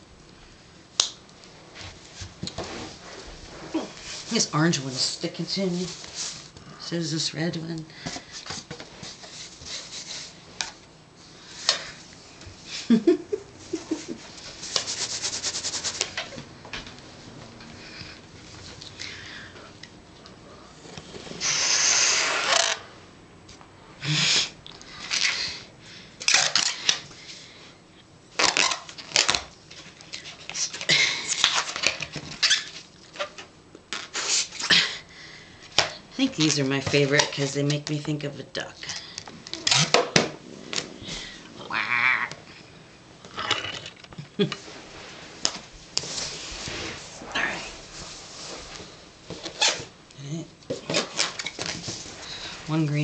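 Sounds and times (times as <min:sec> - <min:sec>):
breath blowing into balloon: 0:21.3 - 0:22.8
balloon rubbery squeaks: 0:21.4 - 0:22.8, 0:28.4 - 0:29.3, 0:32.4 - 0:33.4, 0:49.4 - 0:49.9.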